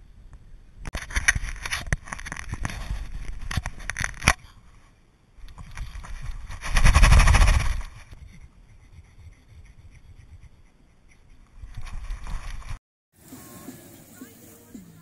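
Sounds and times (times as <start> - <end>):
fur rubbing against camera: 5.8 - 13.5.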